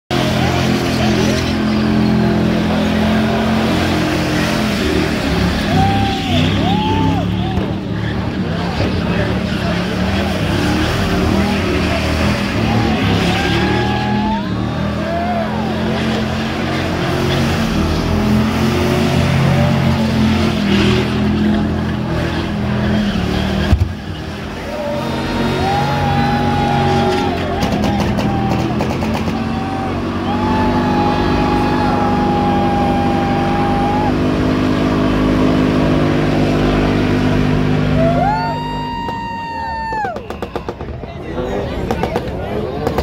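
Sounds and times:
tyres squealing on pavement: 0:00.1 - 0:34.2
engine at high revs: 0:00.1 - 0:38.3
sharp crack: 0:27.6 - 0:29.4.

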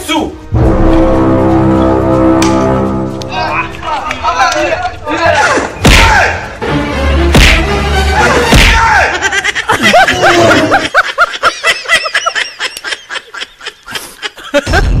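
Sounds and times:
person laughing: 0:09.0 - 0:15.0.

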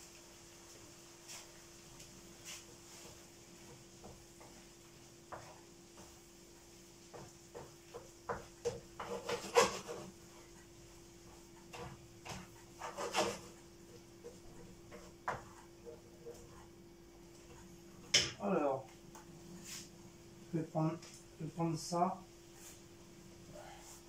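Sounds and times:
utensil scraping in frying pan: 0:02.4 - 0:13.6.

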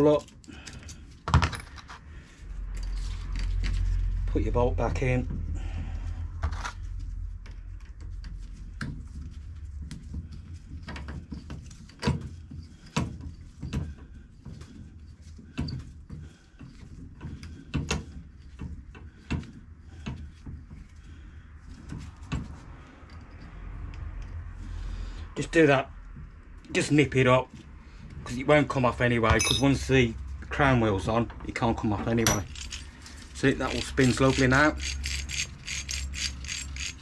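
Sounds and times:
metal parts clicking and knocking: 0:29.3 - 0:29.9, 0:32.0 - 0:37.0.

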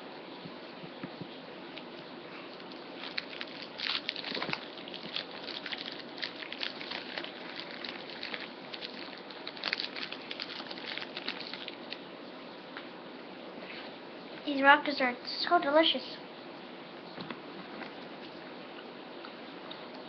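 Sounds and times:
candy crunching: 0:02.4 - 0:12.1.

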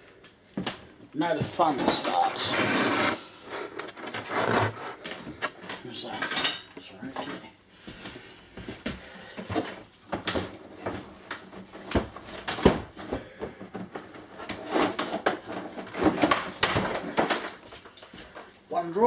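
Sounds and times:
loose items knocking and clattering: 0:09.5 - 0:17.8.

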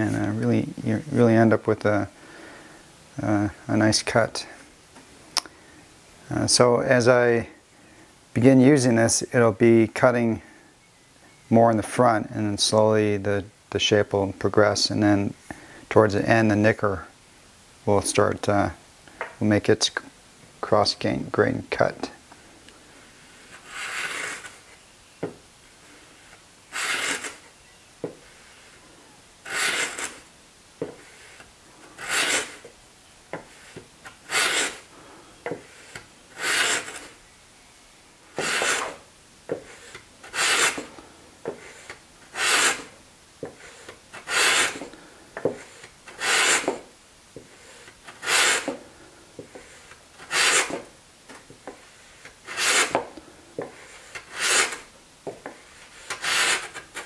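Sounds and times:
hand plane rasping on wood: 0:23.2 - 0:24.6, 0:26.2 - 0:27.4, 0:29.4 - 0:32.7, 0:33.3 - 0:37.2, 0:38.4 - 0:40.9, 0:41.5 - 0:48.8, 0:49.4 - 0:50.9, 0:51.7 - 0:57.0.

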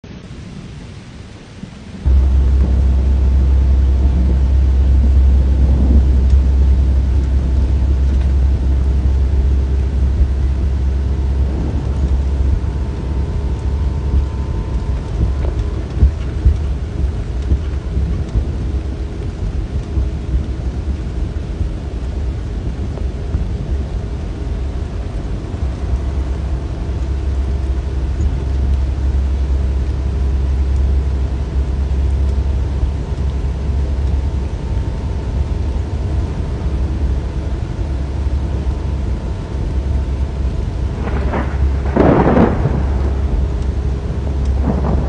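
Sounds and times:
faint hum tones: 0:00.0 - 0:45.0
truck engine idling: 0:02.1 - 0:22.6.

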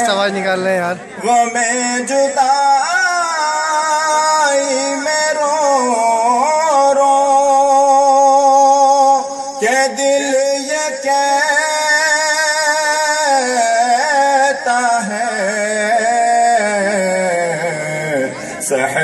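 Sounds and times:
man singing melismatic notes: 0:00.0 - 0:19.0.

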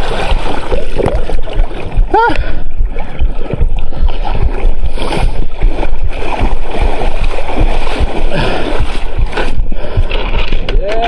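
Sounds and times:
low handling thumps: 0:00.0 - 0:11.0
camera handling rumble: 0:10.0 - 0:11.0.

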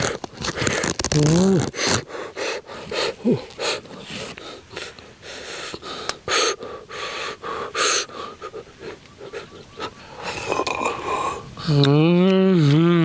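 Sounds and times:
person sucking snail shells: 0:00.0 - 0:06.6, 0:10.2 - 0:12.0.

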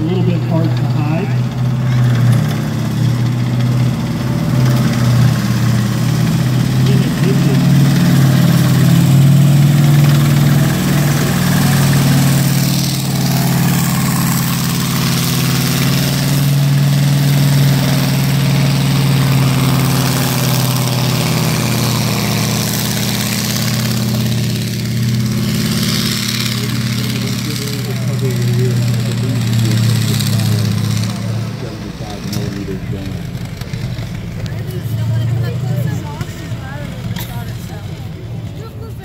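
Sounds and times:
tank engine running: 0:00.0 - 0:39.0.

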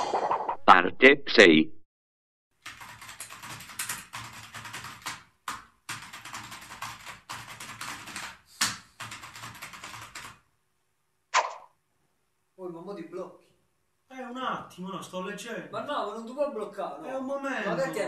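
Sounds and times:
fast typing on laptop keyboard: 0:02.6 - 0:10.4
sharp loud knock: 0:11.4 - 0:11.7.

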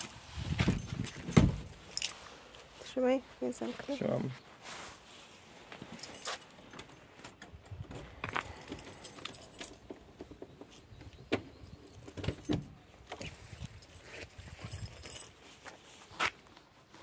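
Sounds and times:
keys jangling: 0:00.0 - 0:02.5, 0:05.8 - 0:10.0, 0:11.6 - 0:15.6.

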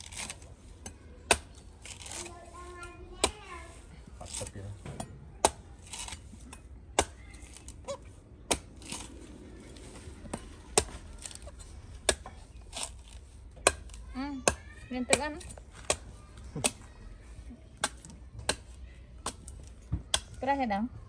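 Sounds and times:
rasping tearing noises: 0:00.0 - 0:00.6, 0:01.6 - 0:04.7, 0:05.5 - 0:10.0.

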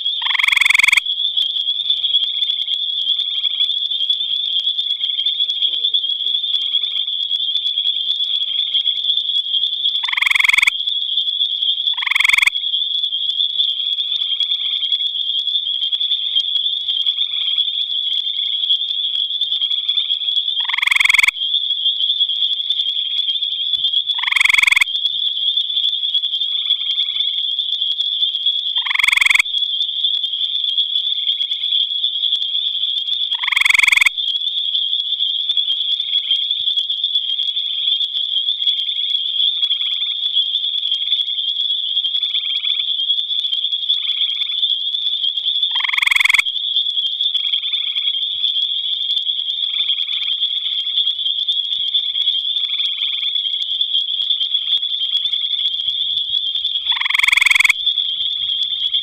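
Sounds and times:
tree frog trilling: 0:00.0 - 0:01.5, 0:09.9 - 0:10.9, 0:11.8 - 0:15.0, 0:15.8 - 0:22.3, 0:23.0 - 0:25.2, 0:28.7 - 0:29.6, 0:33.2 - 0:34.2, 0:44.0 - 0:44.7, 0:45.3 - 0:48.2, 0:49.5 - 0:59.0
distant frogs trilling: 0:00.0 - 0:59.0.

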